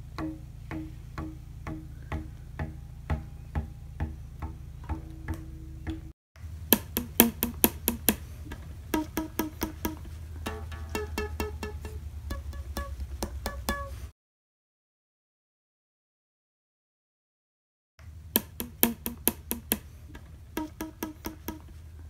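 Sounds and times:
bass guitar notes: 0.0 - 14.1, 18.6 - 21.8
steady low hum: 0.0 - 14.1.

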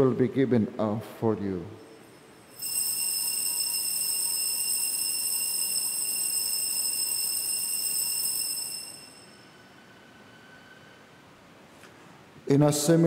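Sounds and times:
altar bells ringing: 1.9 - 10.2.

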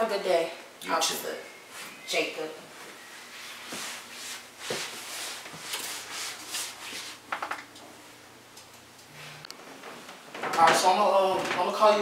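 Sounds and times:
footsteps: 2.6 - 7.5.

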